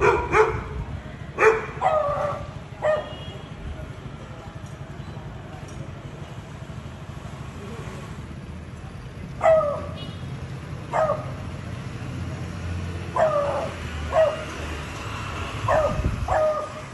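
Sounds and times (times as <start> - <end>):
dog barking: 0.0 - 0.7, 1.4 - 3.2, 9.4 - 10.0, 10.9 - 11.4, 13.2 - 14.5, 15.7 - 16.8
low traffic rumble: 0.0 - 16.9.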